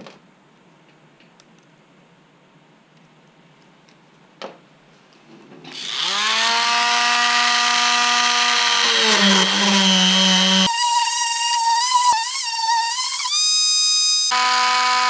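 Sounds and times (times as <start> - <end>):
rotary tool whining: 5.7 - 15.0.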